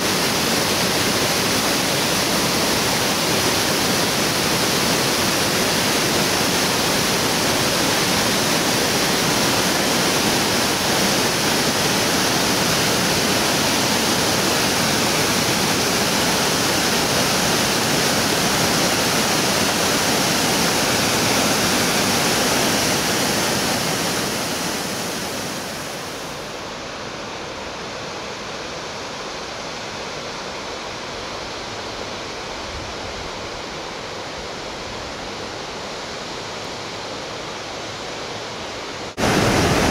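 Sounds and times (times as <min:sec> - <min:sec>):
waterfall rushing: 0:00.0 - 0:27.1, 0:37.0 - 0:39.9
river flowing: 0:00.0 - 0:39.9.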